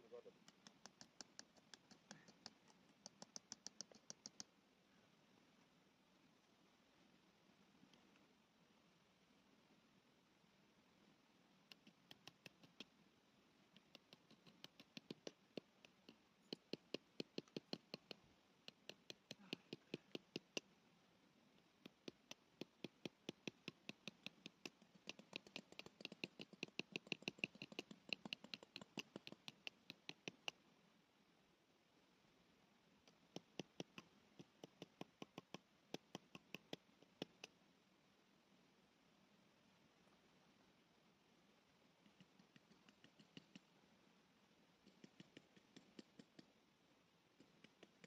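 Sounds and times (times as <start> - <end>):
tent peg being tapped: 0.4 - 4.5, 13.8 - 20.7, 21.8 - 30.6, 33.1 - 37.5.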